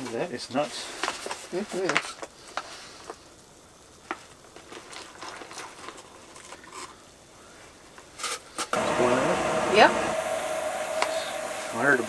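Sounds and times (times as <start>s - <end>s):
small ticks and crackles: 0.1s - 8.7s
stove burner hiss: 7.0s - 12.0s.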